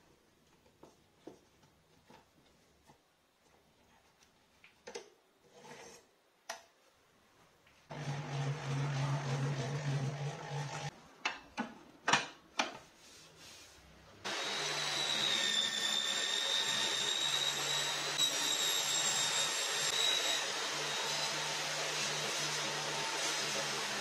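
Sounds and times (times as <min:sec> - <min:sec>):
power tool motor whine: 0:14.3 - 0:24.0.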